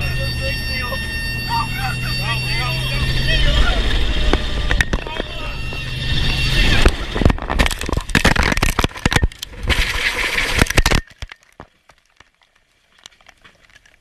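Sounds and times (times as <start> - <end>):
helicopter crashing: 0.0 - 10.9.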